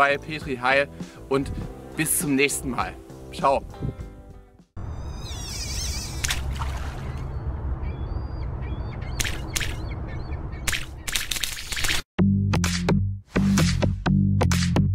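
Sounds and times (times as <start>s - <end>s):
short bird-like calls: 5.1s - 10.8s
steady low rumble: 5.8s - 11.1s.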